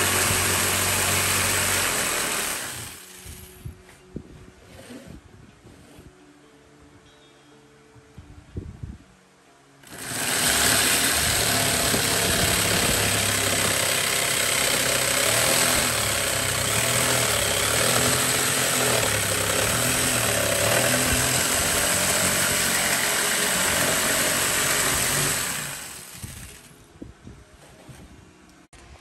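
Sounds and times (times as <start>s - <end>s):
jigsaw cutting plywood: 0.0s - 3.3s, 9.8s - 26.7s.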